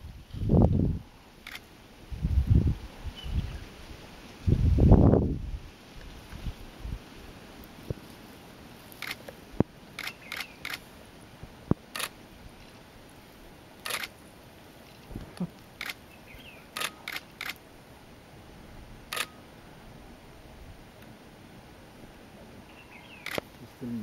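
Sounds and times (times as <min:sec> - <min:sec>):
camera shutter clicks: 0:01.4 - 0:01.6, 0:09.0 - 0:09.3, 0:10.0 - 0:10.8, 0:11.9 - 0:12.2, 0:13.8 - 0:14.2, 0:15.8 - 0:16.0, 0:16.8 - 0:17.6, 0:19.1 - 0:19.4, 0:23.2 - 0:23.5.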